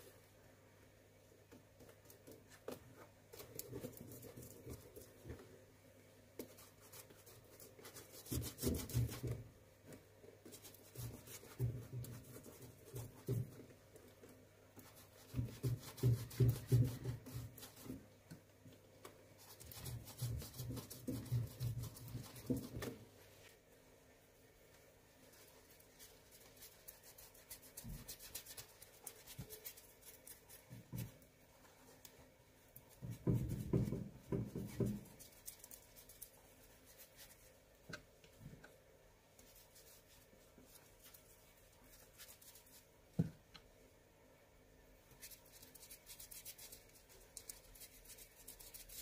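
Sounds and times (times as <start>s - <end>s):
faint low hum: 0.0s - 49.0s.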